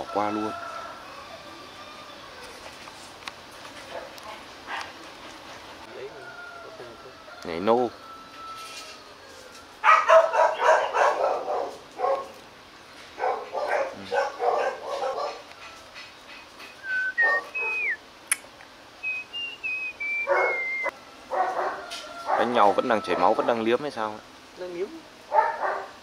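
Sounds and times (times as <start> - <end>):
dogs making rhythmic vocal sounds: 13.2 - 15.8
short whistled notes: 16.7 - 18.0, 19.0 - 20.9.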